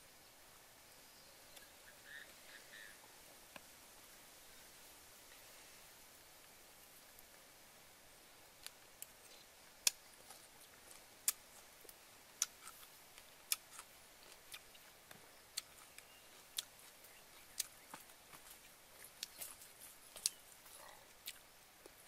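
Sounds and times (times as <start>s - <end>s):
person chewing with smacking clicks: 9.8s - 22.0s.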